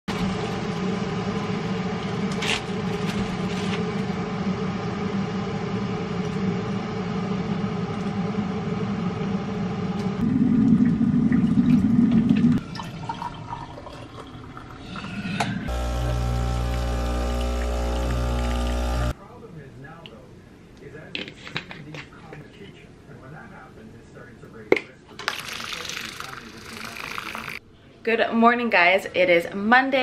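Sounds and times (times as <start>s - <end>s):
low mechanical hum and rumble: 0.1s - 12.6s, 15.4s - 21.1s.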